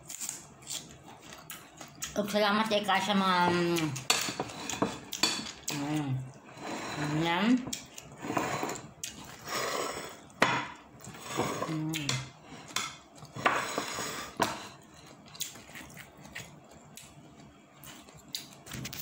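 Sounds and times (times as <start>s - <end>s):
plates and tableware clinking: 4.1s - 5.7s, 8.2s - 14.8s.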